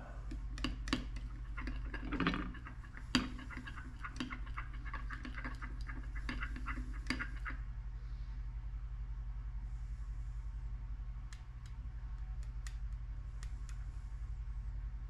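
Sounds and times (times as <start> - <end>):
steady low hum: 0.0 - 15.0
stir stick tapping glass cup: 0.3 - 7.5.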